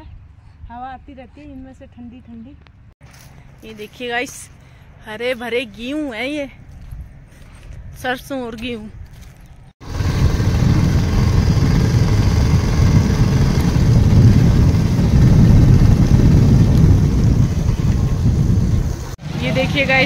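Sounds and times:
vehicle riding on road rumble: 8.9 - 20.0.

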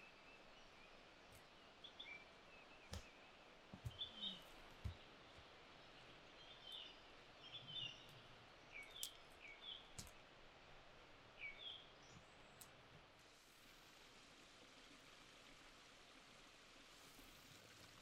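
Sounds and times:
small bird chirping: 0.0 - 10.1
soft footsteps and twig clicks: 2.8 - 7.0, 8.0 - 10.5.

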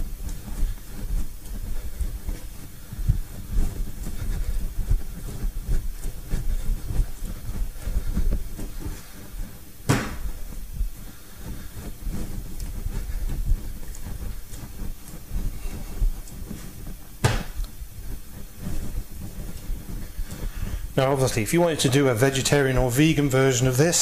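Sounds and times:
dough kneaded on wooden worktop: 0.0 - 24.0
sharp knock: 9.9 - 10.2, 17.2 - 17.6.

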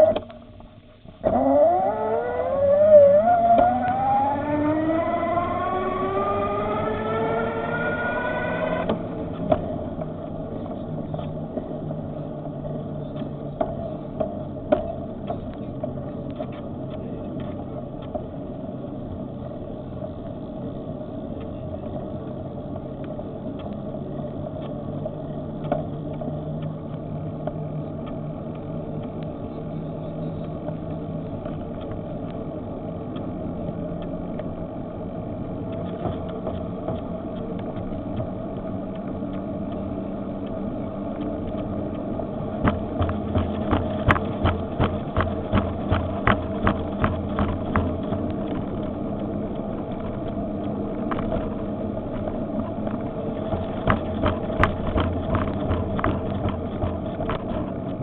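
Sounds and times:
low hum: 0.0 - 58.0
wind and road noise: 0.0 - 58.0
electric bike motor whining: 1.0 - 9.4.

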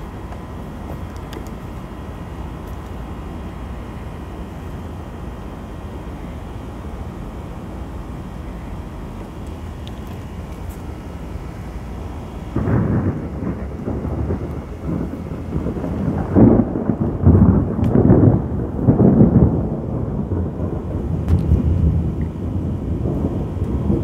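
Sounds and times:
rolling thunder: 12.4 - 24.0.

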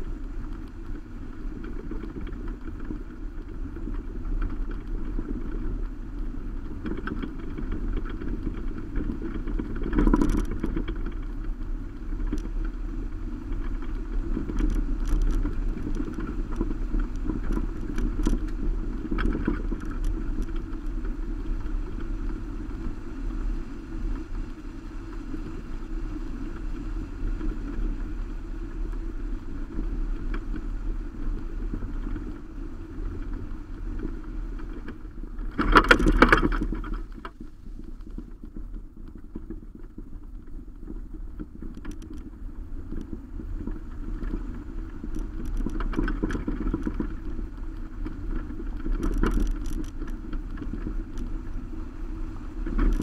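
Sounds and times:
wind: 0.0 - 53.0
sharp clicks and knocks: 34.6 - 37.4, 48.0 - 51.4.

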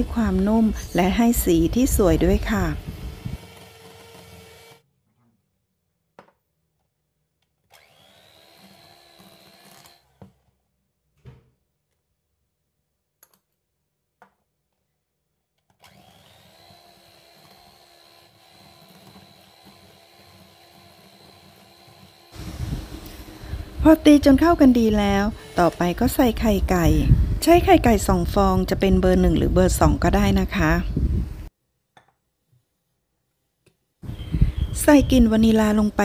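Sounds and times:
electric hand mixer whirring: 0.0 - 4.8, 7.7 - 10.2, 15.8 - 27.4.

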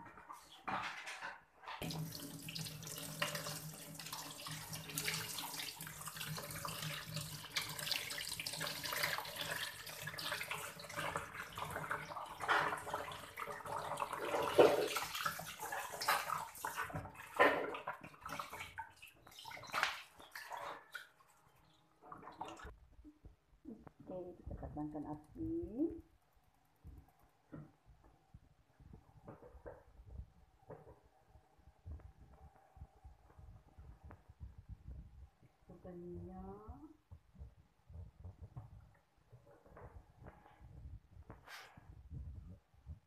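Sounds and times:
water splashing in colander: 1.8 - 22.8.

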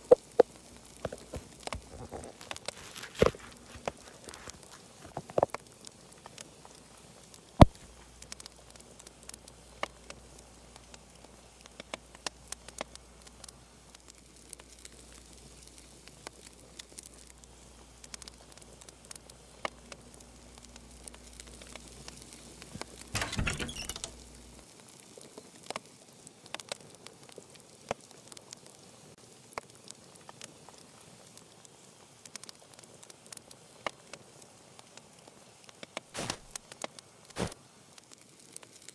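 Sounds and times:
faint clicks and taps: 0.0 - 5.6
rustling: 1.0 - 5.6, 36.2 - 36.6.

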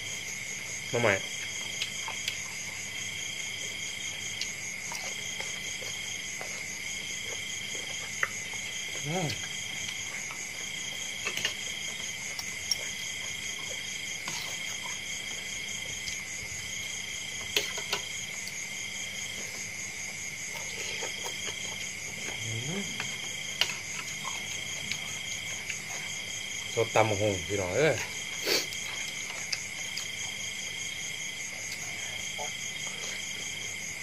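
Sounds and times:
pulsing insect chirp: 0.0 - 34.0
insect high trill: 18.0 - 34.0.

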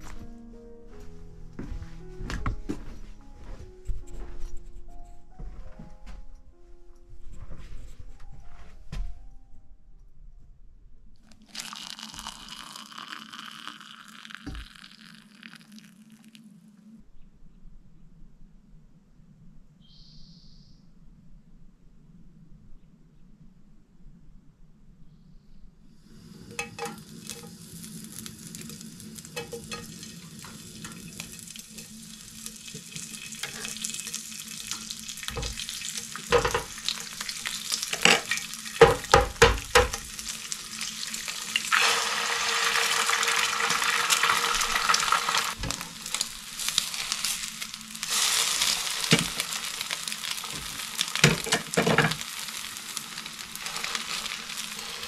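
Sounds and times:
bacon sizzling in a frying pan: 26.4 - 55.0
egg cracking against a pan: 26.6 - 41.9, 48.6 - 52.6.

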